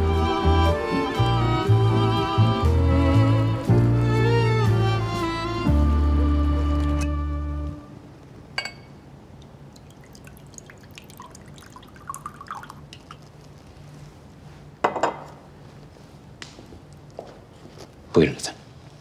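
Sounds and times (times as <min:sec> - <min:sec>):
glass clinking: 0:08.6 - 0:09.0, 0:14.8 - 0:15.4
glassware clattering: 0:08.6 - 0:09.0, 0:14.8 - 0:15.4
liquid trickling into a glass: 0:09.4 - 0:13.6.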